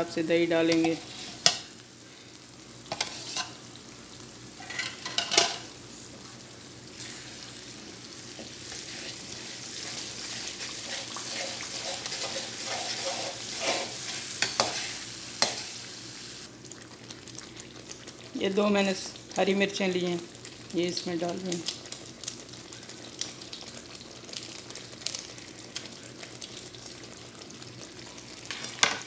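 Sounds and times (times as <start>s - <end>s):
gravy sizzling: 0.0s - 29.0s
metal spoon scraping a pan: 0.7s - 1.7s, 2.9s - 3.6s, 4.6s - 5.6s, 9.8s - 15.7s.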